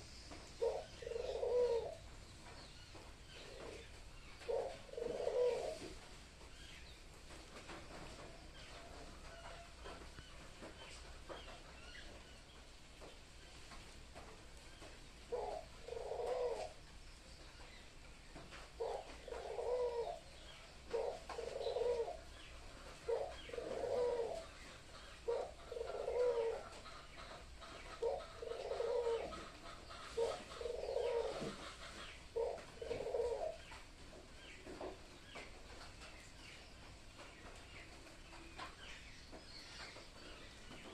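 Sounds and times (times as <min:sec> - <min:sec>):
dove cooing: 0:00.0 - 0:02.1, 0:03.3 - 0:06.0, 0:15.2 - 0:16.8, 0:18.7 - 0:33.8.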